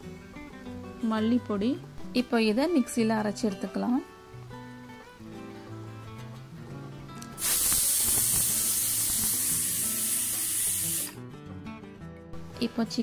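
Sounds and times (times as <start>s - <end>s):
pressure cooker whistling steam: 7.4s - 11.2s.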